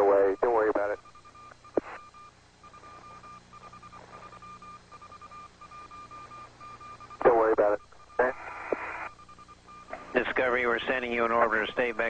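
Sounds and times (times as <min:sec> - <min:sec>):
radio hiss: 0:00.0 - 0:01.0, 0:01.7 - 0:02.2, 0:06.2 - 0:09.2, 0:09.8 - 0:12.0.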